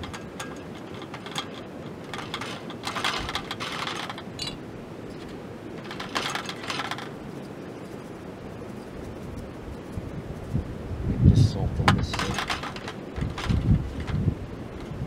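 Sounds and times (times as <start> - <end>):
seasoning rattling in shaker: 6.5 - 10.7.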